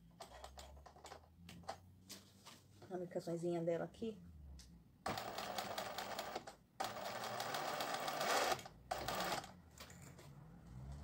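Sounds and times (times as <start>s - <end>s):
sewing machine stitching: 5.1s - 9.6s.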